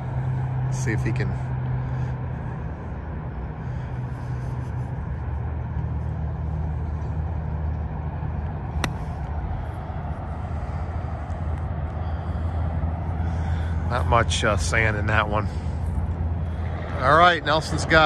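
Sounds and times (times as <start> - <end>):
golf club striking ball: 8.8 - 9.3.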